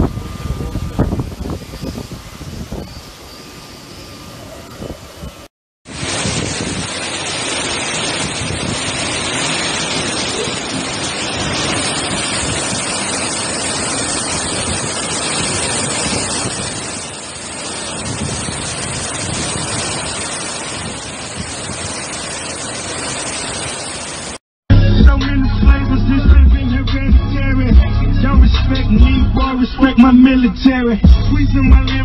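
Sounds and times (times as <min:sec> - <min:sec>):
wind buffeting microphone: 0:00.0 - 0:03.6, 0:04.2 - 0:23.8
strong wind through palm fronds: 0:00.0 - 0:24.4.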